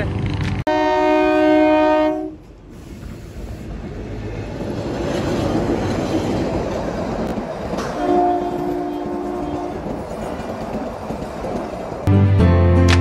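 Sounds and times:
train rumbling past: 0.0 - 12.7
train horn: 0.7 - 2.4, 7.8 - 10.0.

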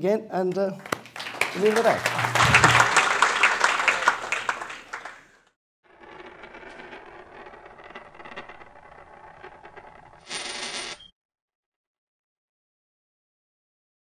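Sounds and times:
applause: 0.7 - 5.5
coins rolling and rattling: 6.0 - 11.0.

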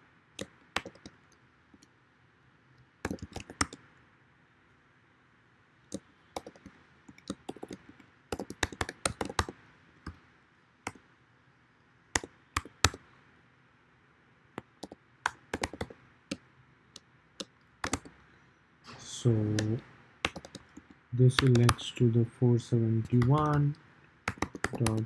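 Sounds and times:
typing on computer keyboard: 0.4 - 1.2, 3.0 - 3.8, 5.9 - 10.2, 12.2 - 13.0, 14.8 - 16.0, 17.4 - 18.2, 19.6 - 20.8, 21.4 - 21.9, 23.0 - 23.6, 24.3 - 25.0.

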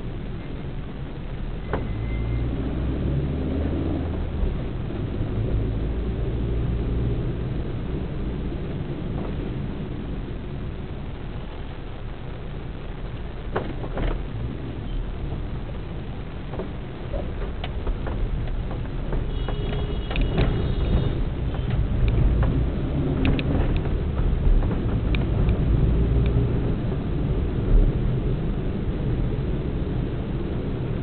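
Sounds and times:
vehicle rumble in city traffic: 0.0 - 31.0
high-pitched beep: 1.7 - 2.5.

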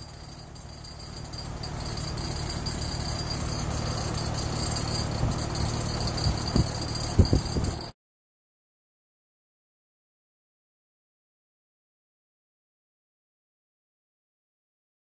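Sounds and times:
heat pump metallic rattle: 0.0 - 7.9.

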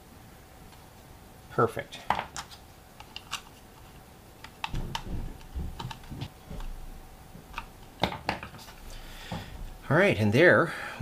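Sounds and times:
low handling thumps: 4.7 - 7.5.

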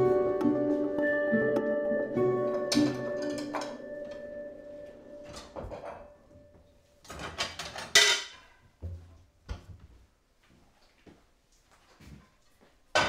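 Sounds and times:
dishes clattering: 2.6 - 4.4, 5.3 - 6.2, 7.0 - 8.6.

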